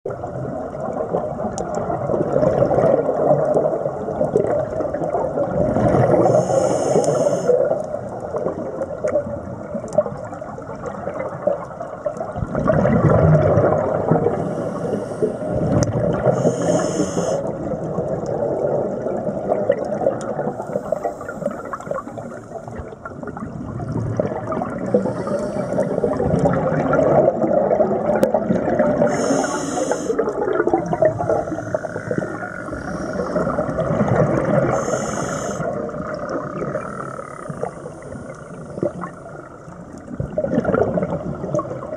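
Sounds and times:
exhaust bubbles gurgling: 0.1 - 41.9
regulator inhalation hiss: 6.2 - 7.7, 14.4 - 15.6, 16.2 - 17.5, 20.6 - 21.9, 24.9 - 26.2, 29.1 - 30.2, 34.7 - 35.7.

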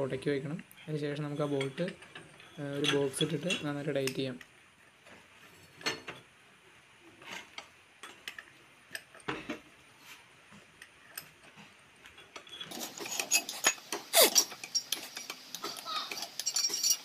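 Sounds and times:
spanner clinking on bolts: 12.2 - 17.0.

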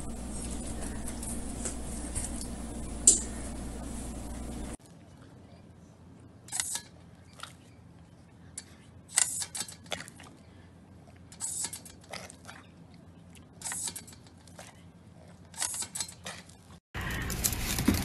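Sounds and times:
loud steady noise: 0.0 - 4.8.

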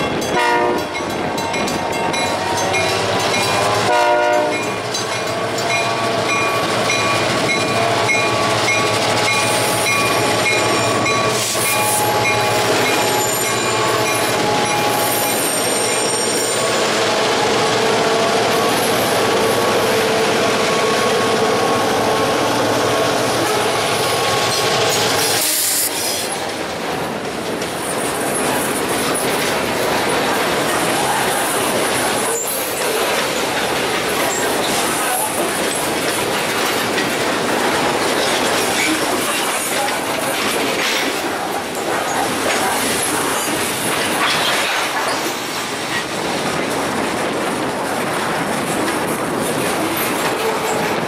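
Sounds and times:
diesel locomotive rumbling past: 0.0 - 44.2
freight cars rolling on rails: 0.0 - 51.0.

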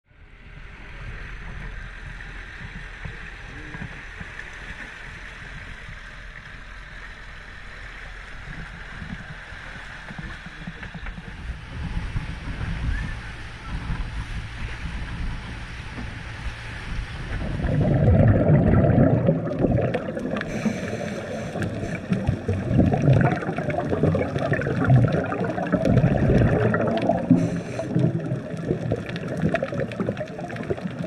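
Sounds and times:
wind buffeting microphone: 10.0 - 20.5
water rushing: 15.5 - 31.0.

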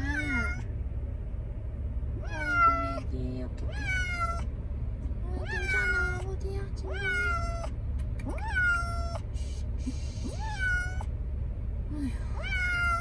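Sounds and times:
cat meowing in distress: 0.0 - 0.7, 2.2 - 3.0, 3.7 - 4.5, 5.4 - 6.2, 6.9 - 7.7, 8.3 - 9.2, 10.2 - 11.1, 12.4 - 13.0
steady low rumble: 0.0 - 13.0.

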